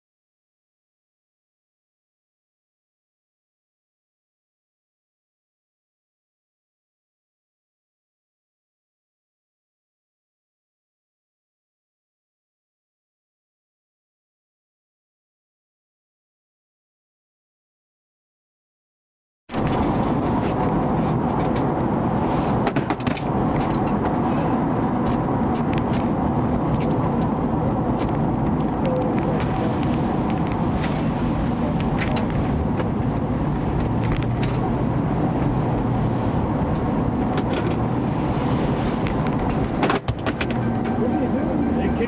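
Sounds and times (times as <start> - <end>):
car road and engine noise: 19.5 - 42.0.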